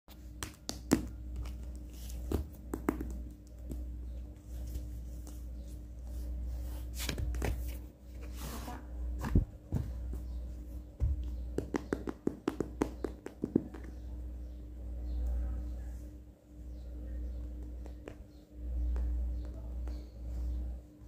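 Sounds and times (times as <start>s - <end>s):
fingers tapping on cardboard: 0.4s - 3.9s, 11.0s - 14.1s.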